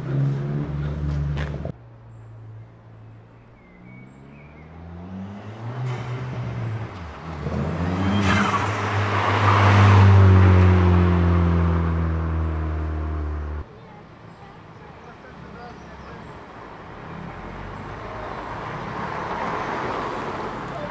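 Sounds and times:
car engine pulling away: 0:03.6 - 0:13.6
car accelerating through gears: 0:04.1 - 0:13.6.

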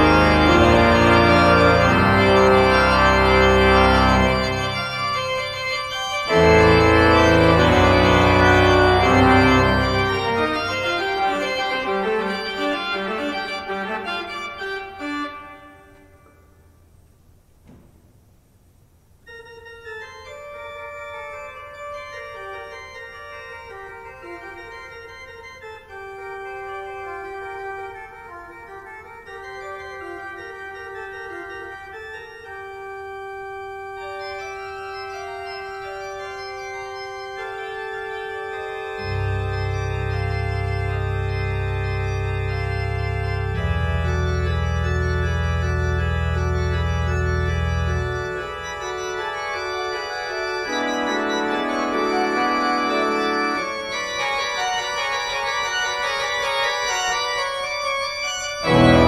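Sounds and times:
deep organ bass notes: 0:00.0 - 0:15.6, 0:29.5 - 0:59.0
church organ chords: 0:00.0 - 0:16.8, 0:19.3 - 0:59.0.

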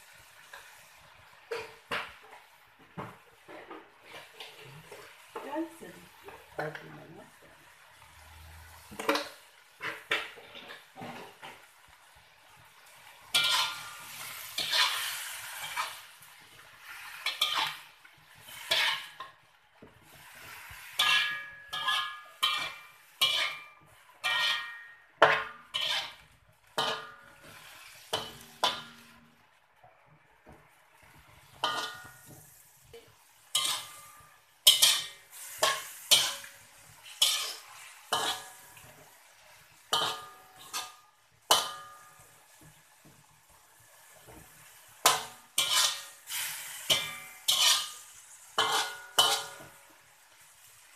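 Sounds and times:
metal spatula scraping a wok: 0:08.0 - 0:11.5, 0:12.9 - 0:29.3, 0:31.5 - 0:42.5, 0:44.0 - 0:49.9
wok ringing: 0:13.3 - 0:16.0, 0:21.0 - 0:26.2, 0:28.2 - 0:29.3, 0:31.6 - 0:32.3, 0:33.5 - 0:36.5, 0:37.2 - 0:38.7, 0:39.9 - 0:42.5, 0:45.0 - 0:49.8.

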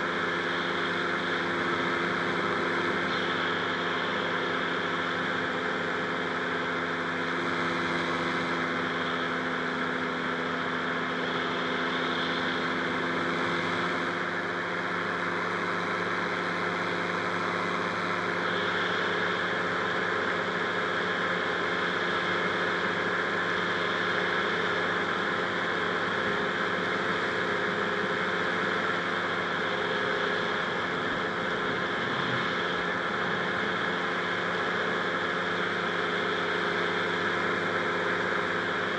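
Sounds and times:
two-stroke engine running: 0:00.0 - 0:38.9.

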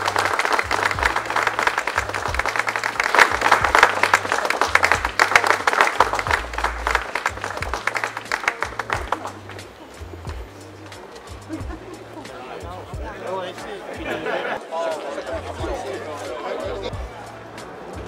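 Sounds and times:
crowd applauding: 0:00.0 - 0:12.6
music with repeating bass line: 0:00.0 - 0:13.2, 0:15.6 - 0:16.0, 0:16.7 - 0:17.3.

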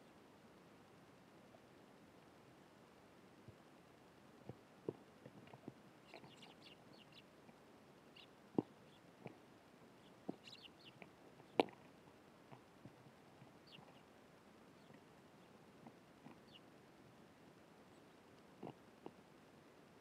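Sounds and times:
sparrows chirping: 0:06.0 - 0:07.3, 0:08.1 - 0:09.1, 0:09.9 - 0:11.7, 0:13.6 - 0:14.1, 0:14.7 - 0:15.6, 0:16.2 - 0:16.7.

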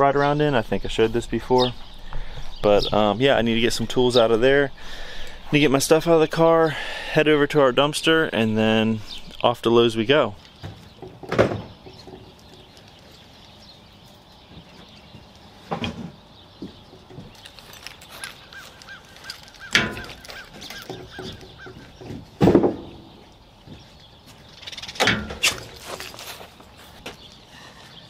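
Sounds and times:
tools knocking and clunking: 0:10.6 - 0:12.4, 0:15.7 - 0:17.4, 0:19.6 - 0:23.1, 0:25.0 - 0:25.8.

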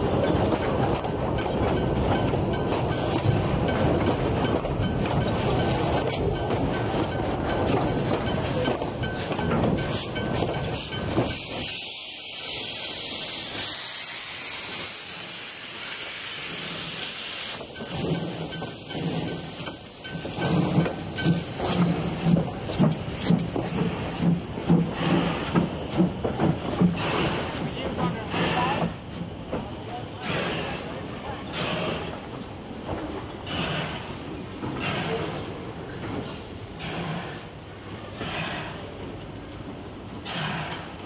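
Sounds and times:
carriage wheels rumbling on rails: 0:00.0 - 0:11.7, 0:17.5 - 0:41.0
steam engine chuffing beat: 0:00.0 - 0:32.8
steam hissing: 0:07.8 - 0:41.0.

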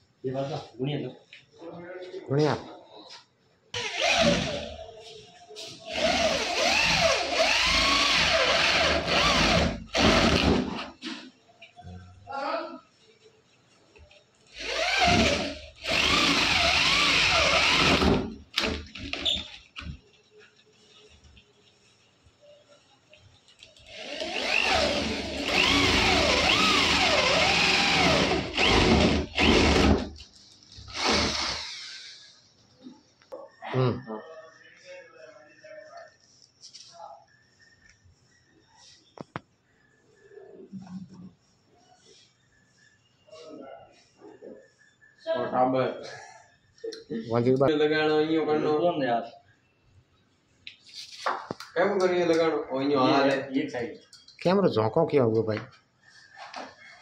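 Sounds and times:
electric drill boring into wood: 0:03.8 - 0:04.6, 0:05.9 - 0:10.6, 0:14.6 - 0:18.7, 0:23.9 - 0:30.1, 0:30.9 - 0:32.1.

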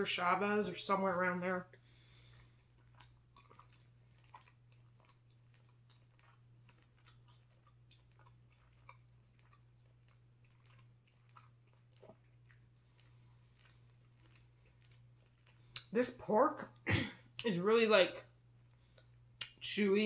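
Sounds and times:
low steady hum: 0:00.0 - 0:20.0
mouth clicks of chewing: 0:02.3 - 0:15.9, 0:18.9 - 0:19.6.

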